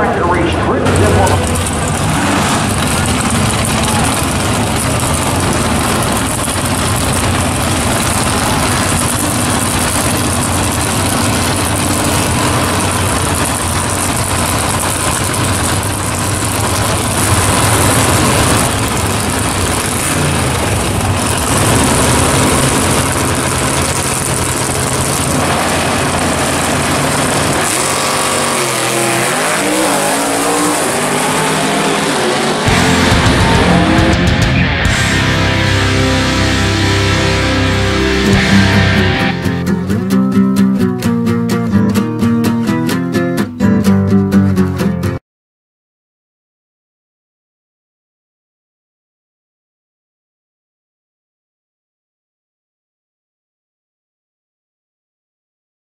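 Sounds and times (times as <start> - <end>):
car accelerating: 0.0 - 40.4
drag race car engines revving: 0.0 - 40.5.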